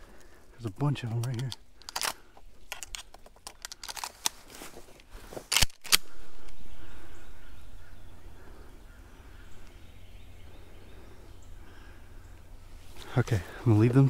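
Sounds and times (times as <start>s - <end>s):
light rustling and clicks: 1.0s - 6.6s.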